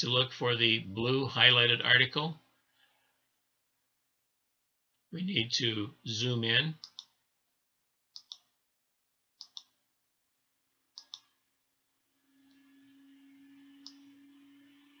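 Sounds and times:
faint steady hum: 0:00.0 - 0:15.0
computer mouse clicks: 0:06.8 - 0:07.2, 0:08.1 - 0:08.5, 0:09.4 - 0:09.8, 0:10.9 - 0:11.4, 0:13.8 - 0:14.1.

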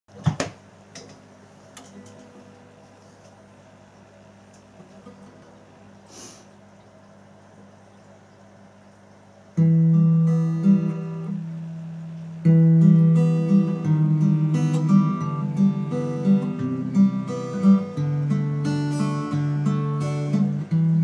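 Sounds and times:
acoustic guitar chords ringing: 0:01.8 - 0:06.0, 0:09.5 - 0:21.0
fingerpicked guitar arpeggio: 0:09.6 - 0:21.0.

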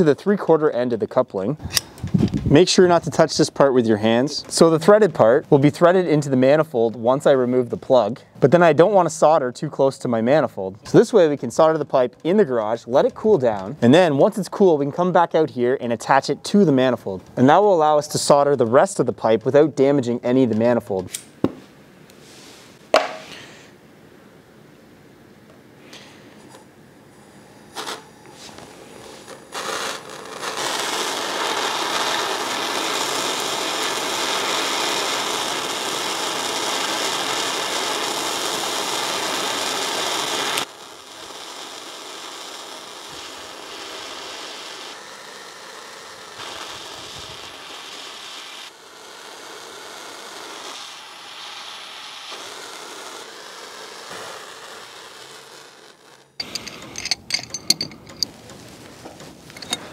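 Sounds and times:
gas torch hissing: 0:25.9 - 0:59.9.

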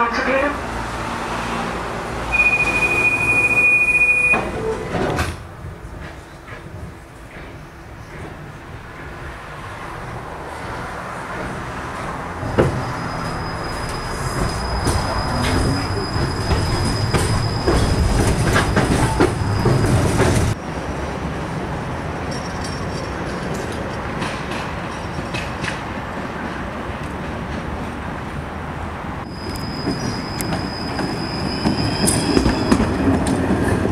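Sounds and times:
tram running noise: 0:00.0 - 0:33.9
wheel squeal: 0:02.3 - 0:05.0, 0:12.6 - 0:20.6, 0:29.3 - 0:33.1.

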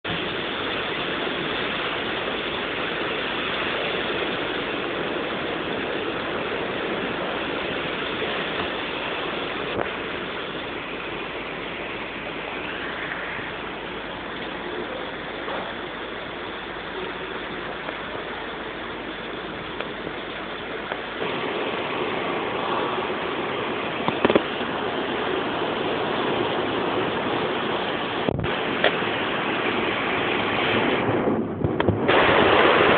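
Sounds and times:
storm wind and heavy rain: 0:00.0 - 0:32.9.

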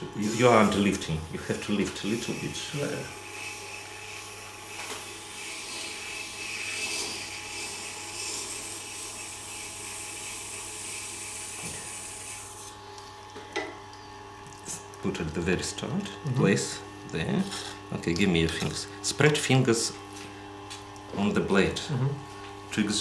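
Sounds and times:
knife rasping on sharpening wheel: 0:00.2 - 0:12.7.

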